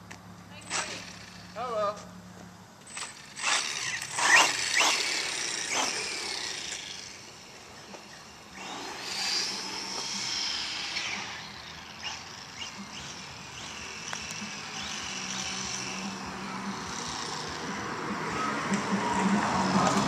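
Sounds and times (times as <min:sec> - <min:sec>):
toy truck motor whining: 0:02.8 - 0:17.8.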